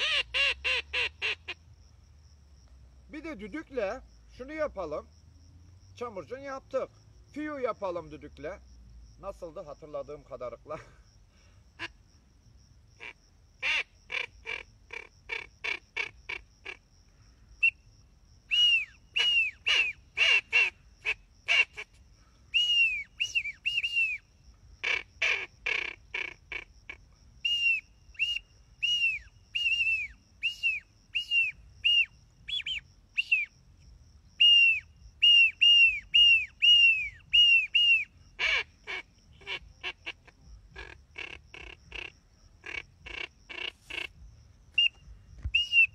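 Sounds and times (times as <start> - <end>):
duck call short whistles: 18.5 - 24.2, 24.8 - 33.5, 34.4 - 40.2, 40.8 - 44.1, 44.8 - 45.9.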